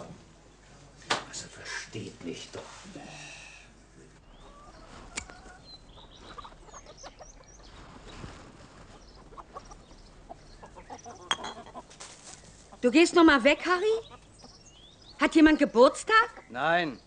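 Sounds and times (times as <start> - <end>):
chickens clucking: 4.2 - 15.2, 16.0 - 16.6.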